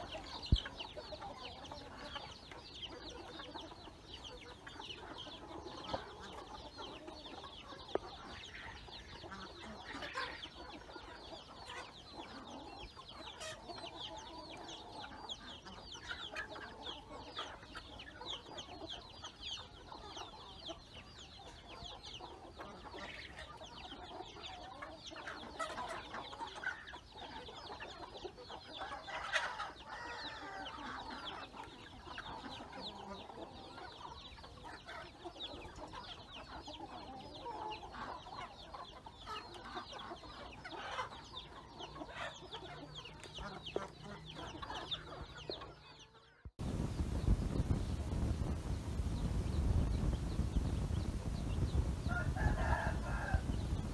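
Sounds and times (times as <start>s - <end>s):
chicks peeping: 0.0s - 53.9s
hens clucking: 0.0s - 53.9s
loud chicken call: 51.9s - 53.9s.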